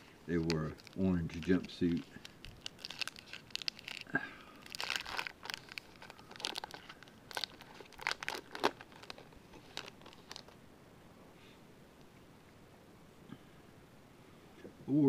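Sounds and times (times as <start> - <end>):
wrapper tearing and crinkling: 0.0 - 10.6.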